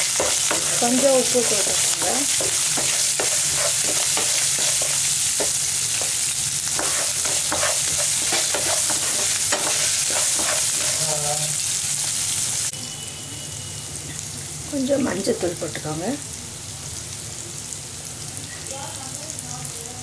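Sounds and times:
spatula scraping a pan: 0.0s - 11.4s
oil sizzling in a pan: 0.0s - 20.0s.

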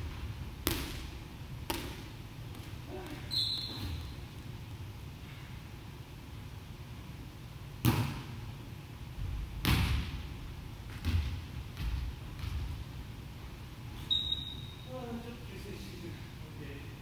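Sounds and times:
volleyball struck hard: 7.8s - 8.3s, 9.6s - 10.2s.

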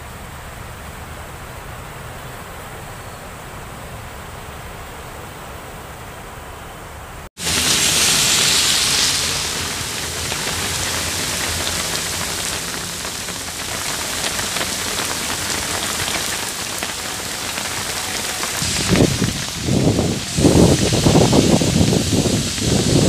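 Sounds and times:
heavy rain on pavement: 7.4s - 23.0s.

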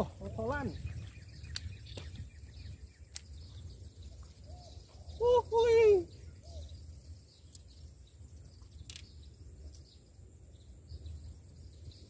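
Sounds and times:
high bird chirps: 0.0s - 12.0s.

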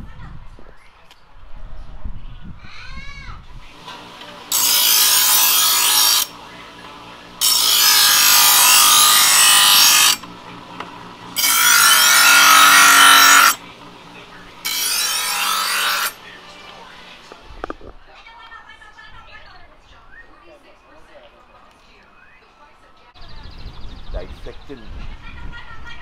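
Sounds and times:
knife grinding in electric sharpener: 3.8s - 6.4s, 7.4s - 13.7s, 14.6s - 16.7s
sharpener motor humming: 3.8s - 6.4s, 7.0s - 14.0s.

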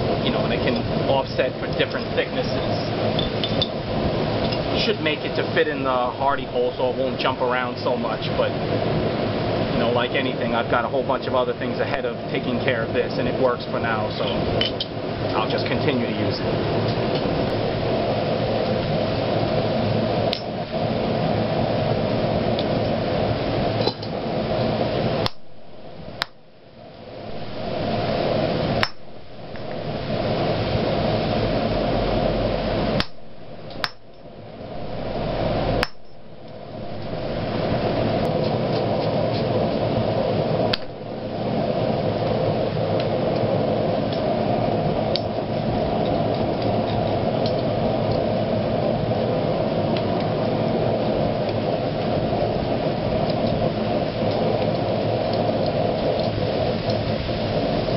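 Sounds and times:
steady rushing noise: 0.0s - 57.9s
hammer blows on hot iron: 27.1s - 39.9s.

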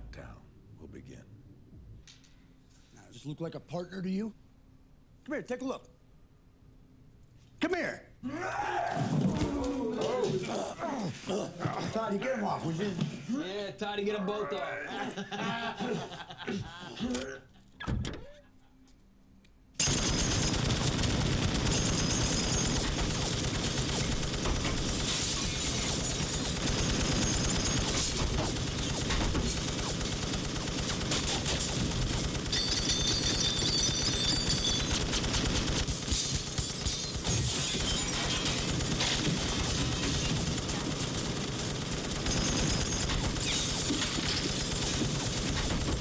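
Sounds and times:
machine gun automatic fire: 19.8s - 46.0s.

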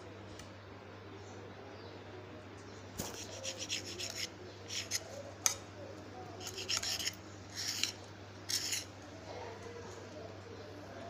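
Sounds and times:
knife sawing through bread crust: 3.0s - 5.1s, 6.4s - 8.9s.

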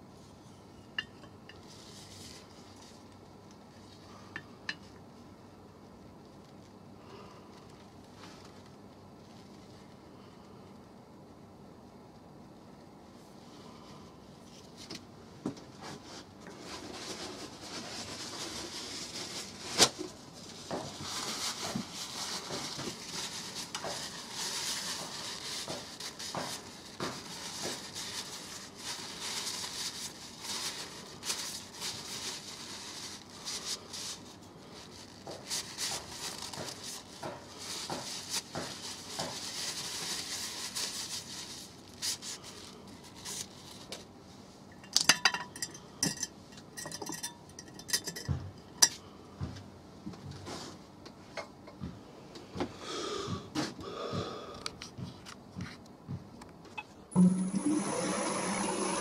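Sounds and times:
paper towel rustling and rubbing: 1.6s - 4.0s, 15.7s - 44.2s.

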